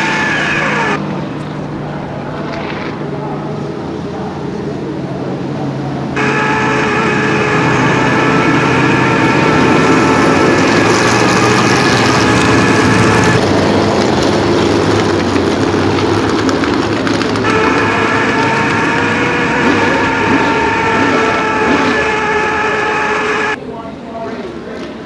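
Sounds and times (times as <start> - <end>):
cars passing trackside: 0.0 - 25.0
race car engine running: 5.0 - 23.6.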